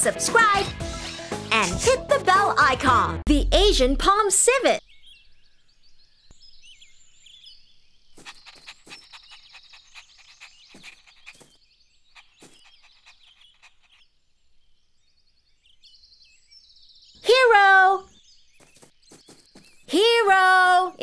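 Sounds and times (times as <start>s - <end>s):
birds chirping: 4.2s - 21.0s.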